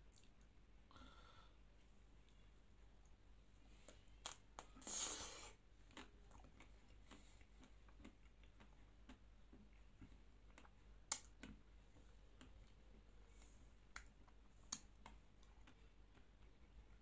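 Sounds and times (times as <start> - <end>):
quiet chewing with wet clicks: 0.0 - 0.6, 1.8 - 17.0
hissy breathy sound: 0.9 - 1.7, 4.6 - 5.6
biting ice cream bar: 5.4 - 12.8.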